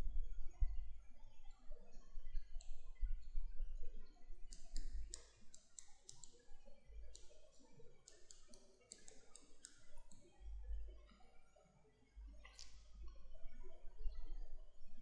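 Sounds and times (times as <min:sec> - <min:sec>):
stylus clicking on pen tablet: 0:04.4 - 0:10.3, 0:12.4 - 0:12.9.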